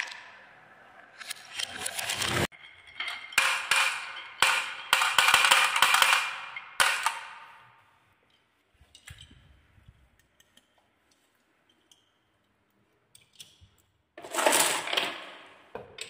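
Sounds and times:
balls clattering down wooden track: 0:01.2 - 0:07.4, 0:14.2 - 0:16.0
balls dropping into plastic truck: 0:03.1 - 0:07.4, 0:14.2 - 0:16.0.

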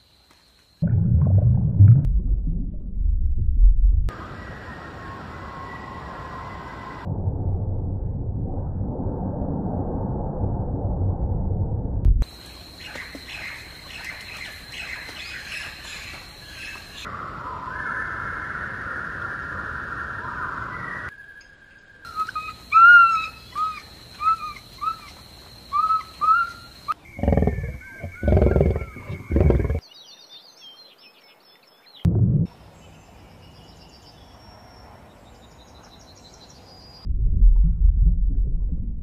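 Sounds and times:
hissing outdoor ambience: 0:04.1 - 0:07.1, 0:12.2 - 0:29.8
short chirping calls: 0:21.4 - 0:29.8
loud deep animal calls: 0:27.0 - 0:29.8.

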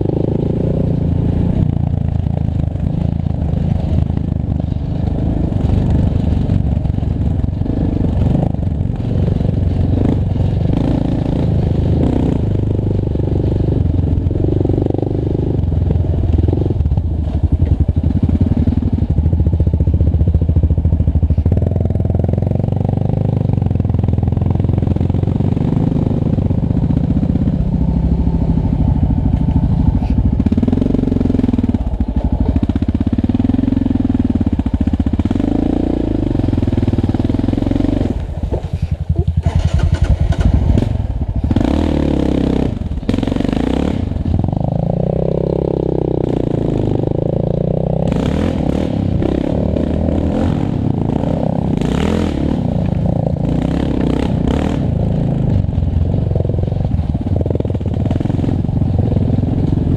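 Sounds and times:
quad engine running hard: 0:00.0 - 0:59.9.

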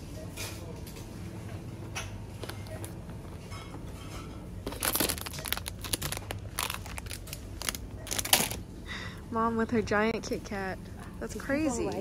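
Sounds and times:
steady low hum: 0:00.0 - 0:12.0
packaging crinkling and rustling: 0:04.6 - 0:08.6.

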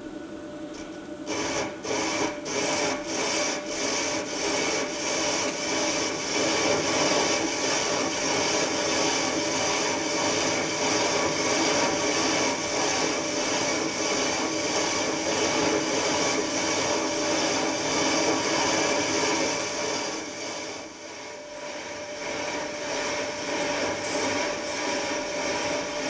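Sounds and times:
machine running: 0:00.7 - 0:26.0
lathe cutting hiss: 0:01.3 - 0:26.0
lathe tool scraping metal: 0:01.3 - 0:26.0.

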